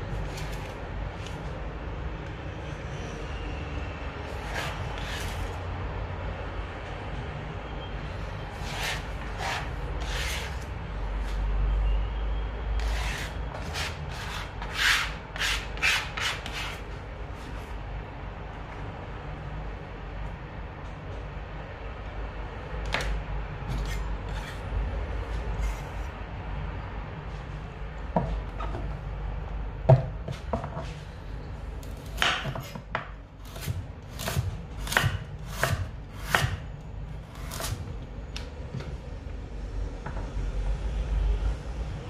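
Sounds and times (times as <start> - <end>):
knife chopping on cutting board: 32.0 - 36.6.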